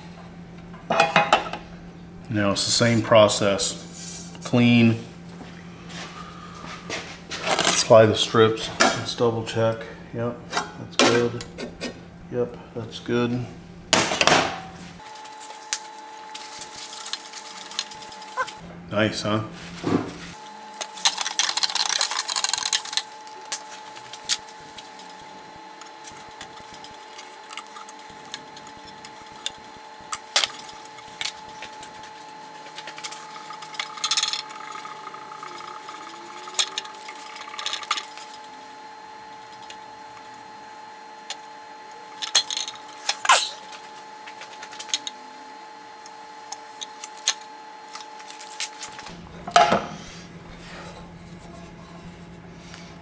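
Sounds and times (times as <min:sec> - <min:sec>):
faint steady hum: 0:00.0 - 0:53.0
tape and liner rustling: 0:15.0 - 0:18.6.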